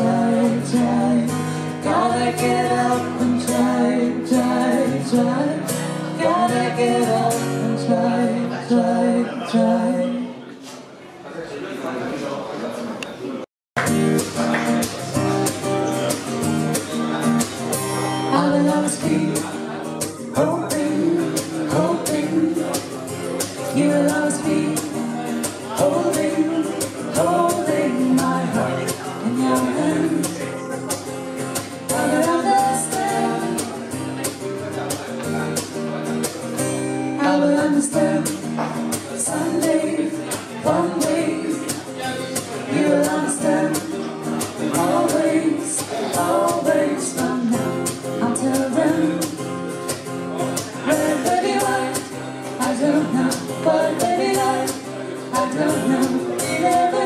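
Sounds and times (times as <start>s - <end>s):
strummed acoustic guitar: 0.0s - 10.2s, 13.8s - 57.0s
man and woman singing: 0.0s - 10.4s, 18.1s - 34.2s, 37.0s - 49.6s, 50.4s - 57.0s.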